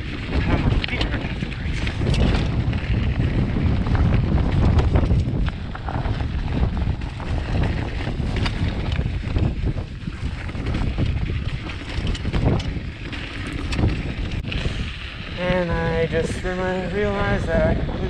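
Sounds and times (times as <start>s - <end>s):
bike clacks and rattles: 0.0s - 18.0s
bike rolling on dirt trail: 0.0s - 18.0s
wind buffeting microphone: 0.0s - 18.0s.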